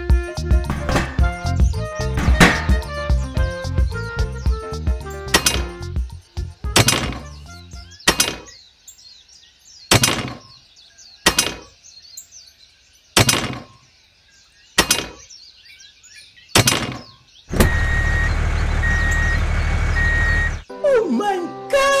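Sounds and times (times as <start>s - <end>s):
birds chirping: 0.0s - 20.8s
sharp ringing knocks: 0.7s - 2.9s, 5.3s - 5.9s, 6.8s - 7.4s, 8.1s - 8.6s, 9.9s - 10.6s, 11.2s - 11.8s, 13.2s - 13.8s, 14.8s - 15.3s, 16.6s - 17.8s
reversing beeper: 17.5s - 20.7s
vehicle engine running: 17.5s - 20.7s.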